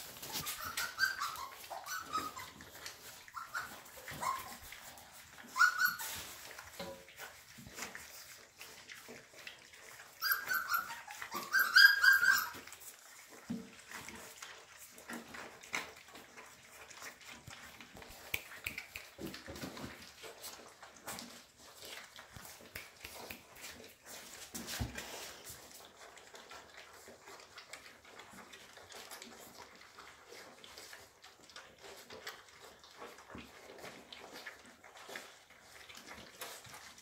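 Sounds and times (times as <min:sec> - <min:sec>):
puppies eating from metal pan: 0:00.0 - 0:37.0
high-pitched puppy cries: 0:00.1 - 0:06.5, 0:10.0 - 0:13.0.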